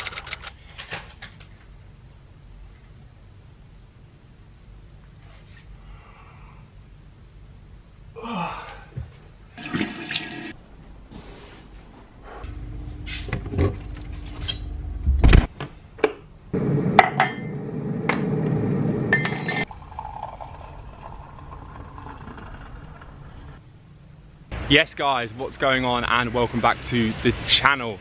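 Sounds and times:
running water: 9.6 - 10.6.

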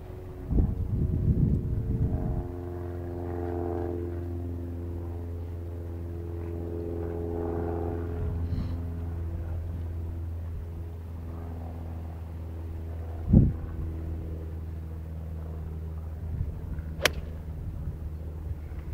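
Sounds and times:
steady low hum: 0.0 - 18.9
golf club striking ball: 17.0 - 17.4.

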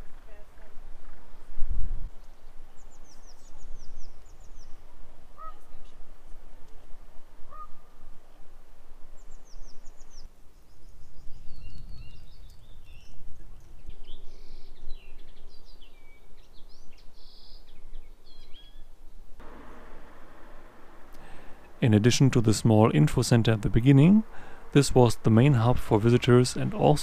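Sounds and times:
lower bird call: 2.1 - 5.9, 7.4 - 8.1
small birds chirping: 2.1 - 6.0, 9.1 - 19.2, 22.6 - 27.0.

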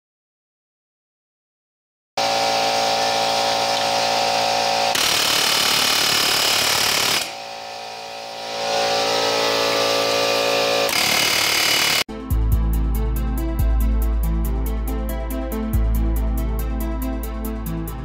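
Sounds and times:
pneumatic air hammer hammering metal: 2.2 - 12.1.

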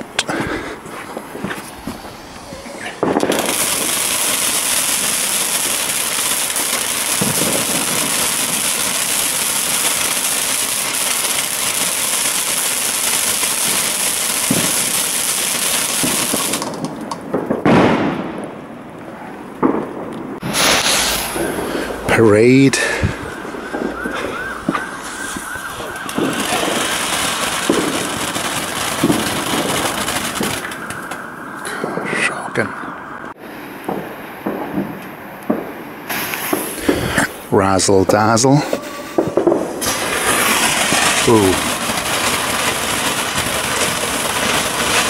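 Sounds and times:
firework fountain hissing: 0.2 - 17.2, 20.4 - 31.3, 35.9 - 45.0.

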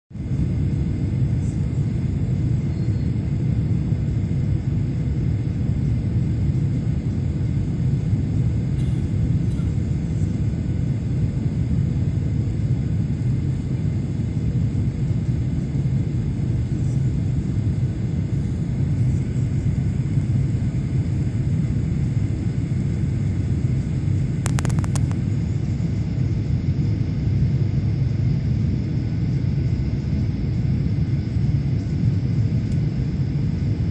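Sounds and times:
jet cabin engine rumble: 0.2 - 33.9
clicks: 24.4 - 25.2.

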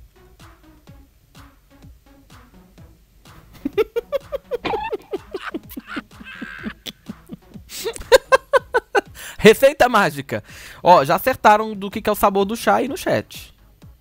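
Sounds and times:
man laughing: 3.6 - 9.4
breathy intake: 9.0 - 9.4, 10.4 - 10.8.

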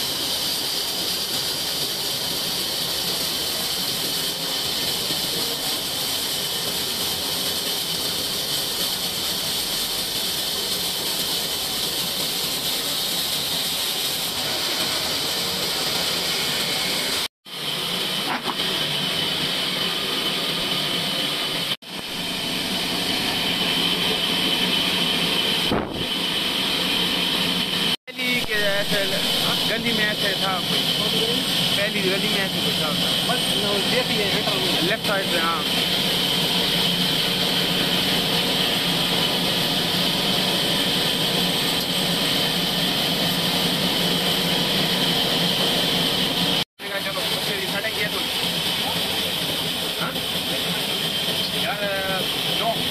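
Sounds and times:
sawmill motor hum: 0.0 - 52.9
high whine of saw blade: 12.8 - 52.9
band saw cutting log: 14.2 - 27.9.

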